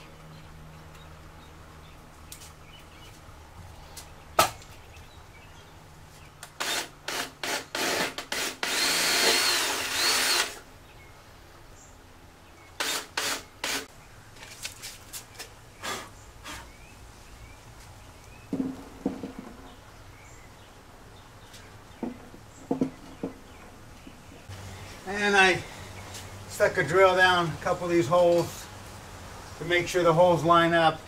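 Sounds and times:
cordless drill drilling: 6.6s - 10.6s, 12.8s - 13.9s.

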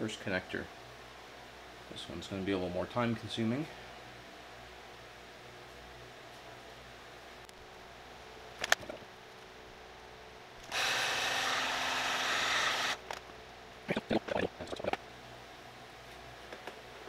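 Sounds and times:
heat gun blowing: 10.6s - 13.0s.

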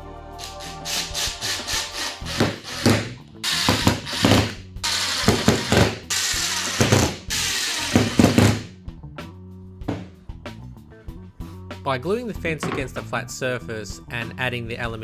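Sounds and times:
power drill driving screws: 0.6s - 8.6s.

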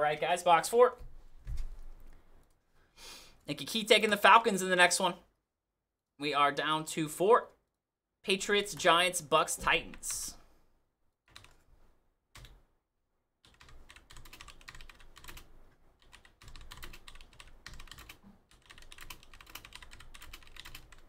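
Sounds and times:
typing on keyboard: 11.3s - 11.6s, 13.4s - 21.0s.

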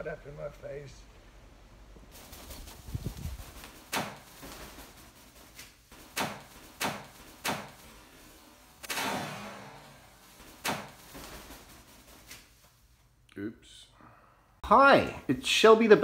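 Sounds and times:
bird wingbeats whooshing: 2.1s - 7.9s, 10.3s - 12.6s.

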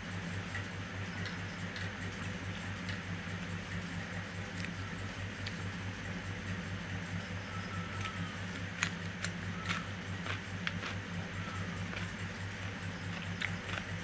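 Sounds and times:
steady low hum: 0.0s - 14.0s
woman chewing food: 0.5s - 6.8s, 7.4s - 14.0s
biting into cucumber: 8.0s - 12.2s, 13.0s - 14.0s.

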